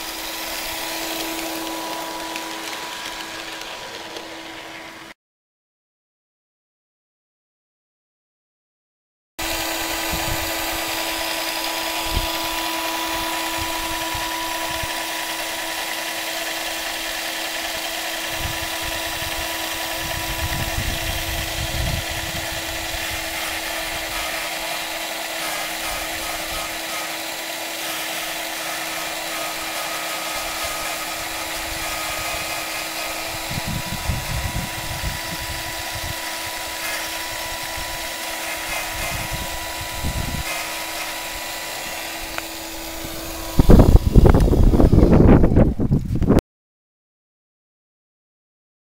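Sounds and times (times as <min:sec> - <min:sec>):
small motor whining: 0:00.0 - 0:05.2, 0:09.4 - 0:46.4.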